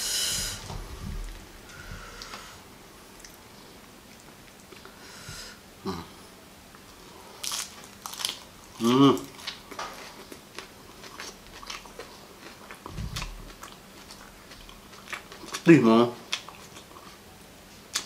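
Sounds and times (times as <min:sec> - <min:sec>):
crunching and chewing flowers: 0:07.4 - 0:15.7
person humming: 0:08.8 - 0:09.3.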